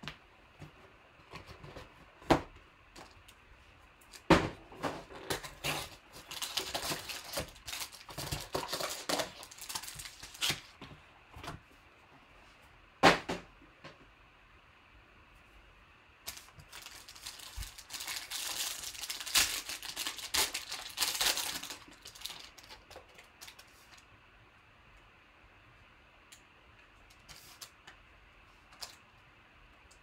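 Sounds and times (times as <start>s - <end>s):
foil crinkling and rustling: 5.2s - 10.8s, 16.3s - 24.0s.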